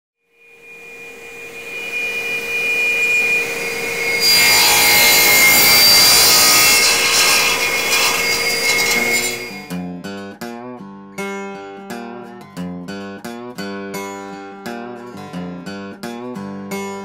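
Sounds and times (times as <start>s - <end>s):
power tool cutting wood: 0.4s - 9.8s
power tool whining: 0.4s - 9.8s.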